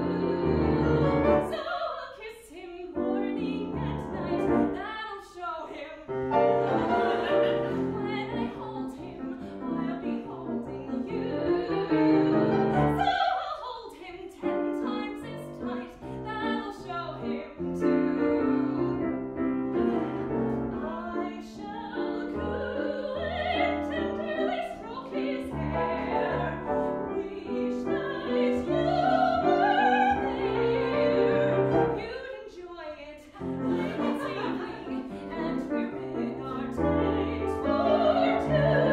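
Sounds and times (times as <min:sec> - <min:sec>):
grand piano: 0:00.0 - 0:02.1, 0:02.7 - 0:38.9
woman singing: 0:00.0 - 0:19.0, 0:20.7 - 0:38.9.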